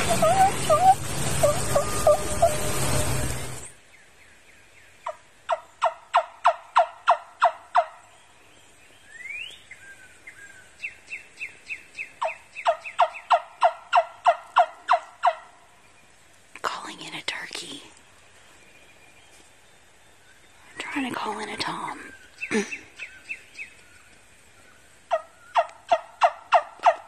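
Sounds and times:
turkey call hen yelps: 0.0 - 2.7, 5.0 - 8.0, 12.2 - 15.5, 25.1 - 27.0.

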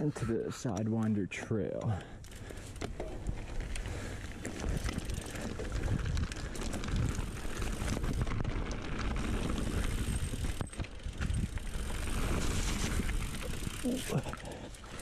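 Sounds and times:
bike rattling and clicking: 0.0 - 15.0
tyres rumbling over dirt: 2.4 - 15.0
wind noise on microphone: 2.9 - 13.8.

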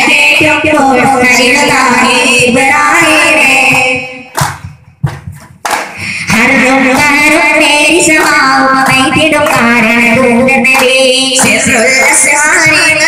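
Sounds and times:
frame drum strikes: 4.4 - 6.0
person singing: 6.0 - 13.0.

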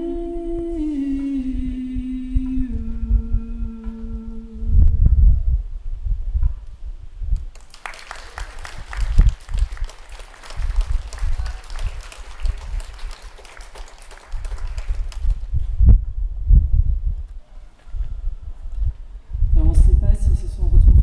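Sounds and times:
wind buffeting microphone: 2.4 - 7.6, 8.4 - 13.6, 14.3 - 21.0
audience applauding: 7.5 - 15.5.

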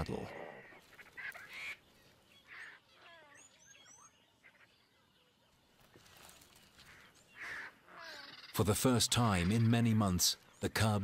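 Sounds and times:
faint bush ambience: 0.0 - 11.0
thin high bird chirps: 0.9 - 8.6.

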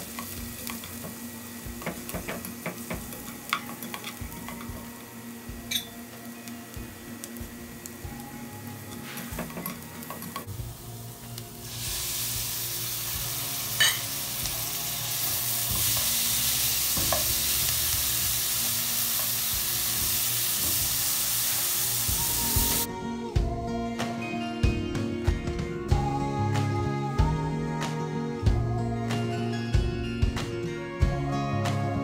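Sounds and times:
masala sizzling in a pan: 0.0 - 22.9.

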